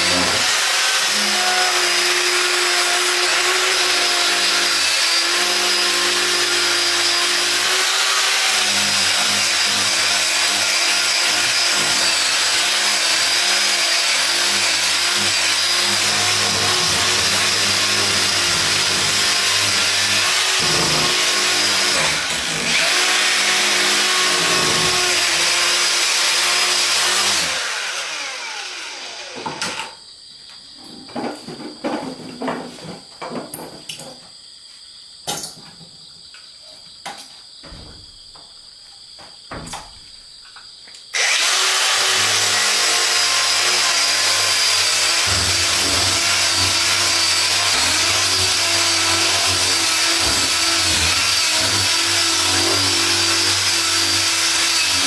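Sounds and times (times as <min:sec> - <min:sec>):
cordless power tool on wood: 0:00.0 - 0:29.9, 0:41.1 - 0:55.0.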